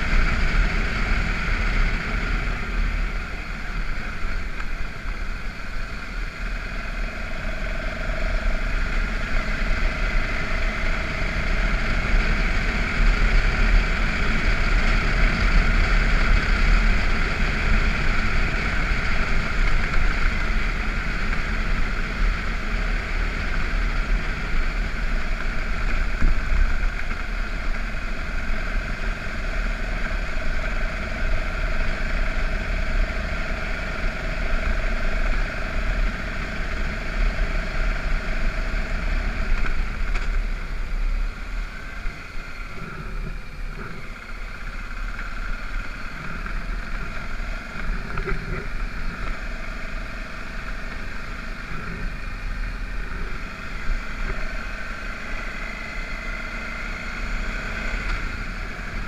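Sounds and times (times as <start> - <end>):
wind rumbling on microphone: 0.0 - 55.6
motorcycle riding on gravel: 0.0 - 59.0.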